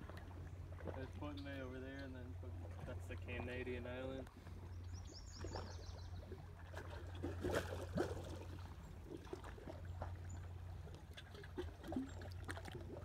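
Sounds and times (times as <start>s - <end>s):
waves lapping on rocks: 6.7s - 10.1s.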